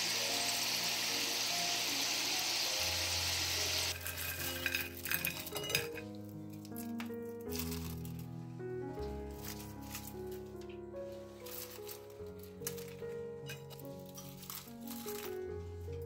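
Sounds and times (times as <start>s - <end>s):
food sizzling in hot oil: 0.0s - 5.5s
soft background music: 0.0s - 16.0s.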